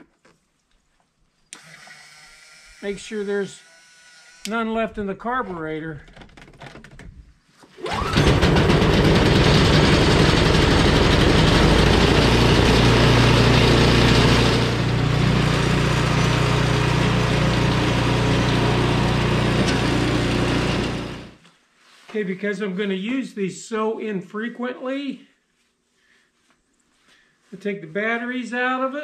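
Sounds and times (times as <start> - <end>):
small gasoline engine running: 7.9 - 21.4.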